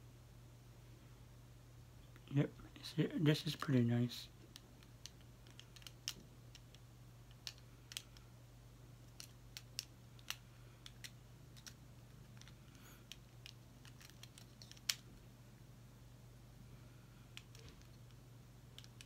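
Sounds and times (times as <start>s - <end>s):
low steady hum: 0.0s - 19.0s
small plastic clicks and taps: 4.4s - 8.3s.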